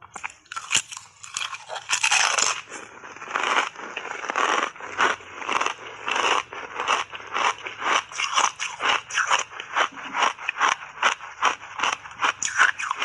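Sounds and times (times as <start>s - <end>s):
chewing crunchy ice chips: 0.0s - 13.0s.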